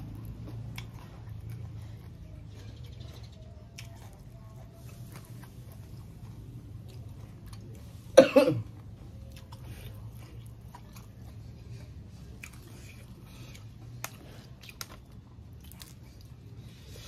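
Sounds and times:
person chewing: 0.0 - 17.0
person coughing: 8.2 - 8.7.

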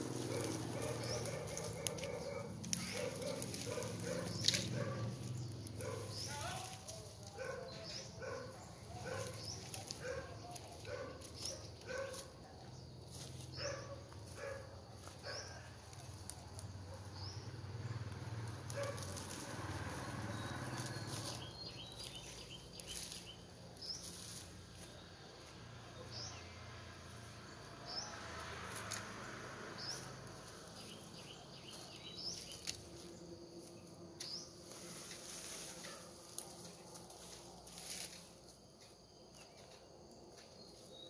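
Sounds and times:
dry brush being cut and pulled: 0.0 - 12.4, 13.1 - 16.8, 18.2 - 26.3, 27.0 - 38.6
dog barking: 0.2 - 5.2, 5.8 - 6.6, 7.3 - 12.4, 13.6 - 15.7, 18.8 - 19.2.

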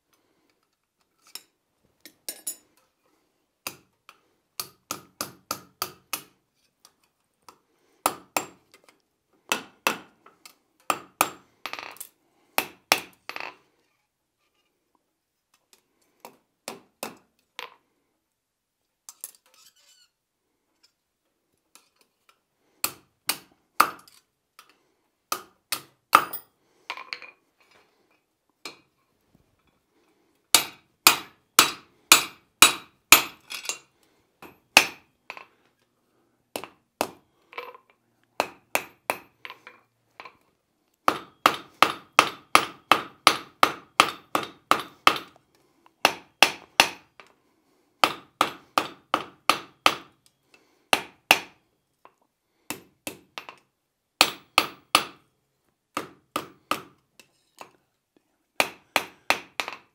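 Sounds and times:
hammer striking iron on anvil: 30.6 - 33.4.

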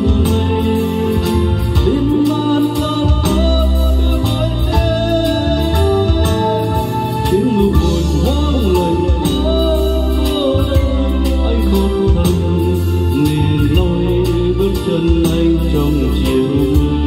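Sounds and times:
loud karaoke music with heavy bass: 0.0 - 17.0.

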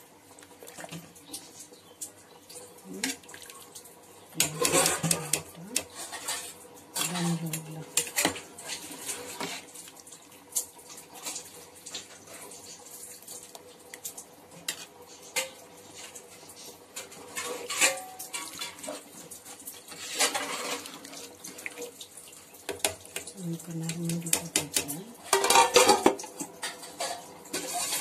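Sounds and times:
metal ladle scraping steel pot: 4.4 - 7.4.

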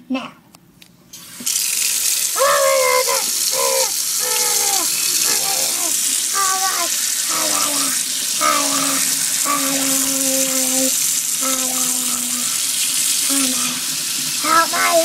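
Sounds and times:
faucet water into metal sink: 1.2 - 15.0
person making long held sounds: 2.2 - 15.0.

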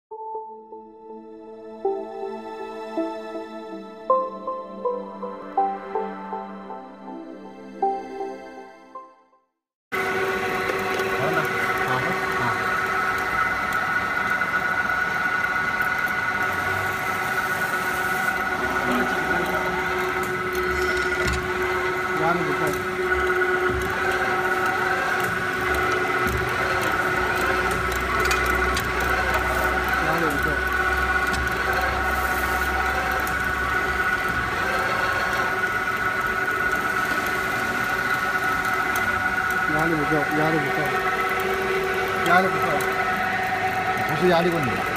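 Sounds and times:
riveting machine whining: 9.9 - 44.9.

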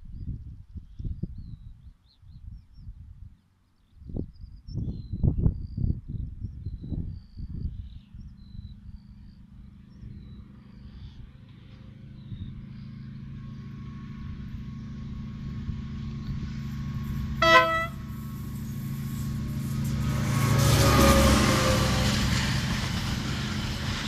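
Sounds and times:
locomotive engine hum: 8.0 - 24.0
train horn toot: 17.4 - 18.4, 20.2 - 22.4.

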